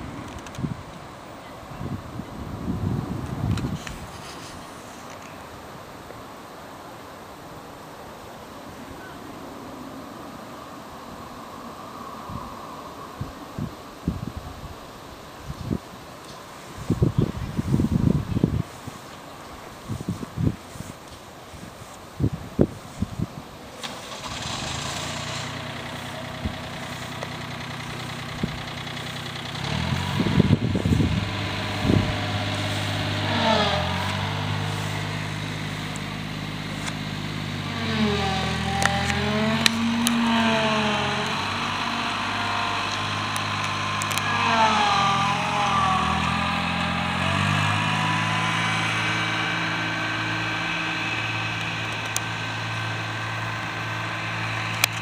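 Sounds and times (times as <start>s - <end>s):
engine running: 23.8s - 55.0s.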